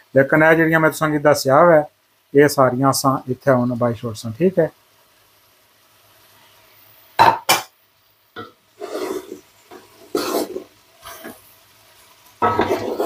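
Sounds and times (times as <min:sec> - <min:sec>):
vegetables knocking into metal pot: 0:07.2 - 0:07.7.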